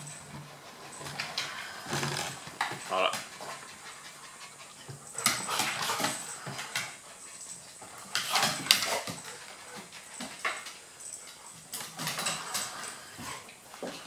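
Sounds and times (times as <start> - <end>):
dogs panting and scuffling: 0.0 - 14.0.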